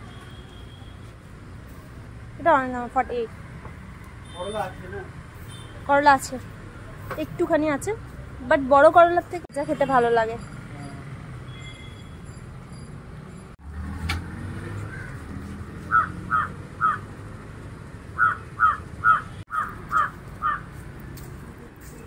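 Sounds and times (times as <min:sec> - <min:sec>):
crow cawing: 0:15.9 - 0:17.0, 0:18.2 - 0:20.7.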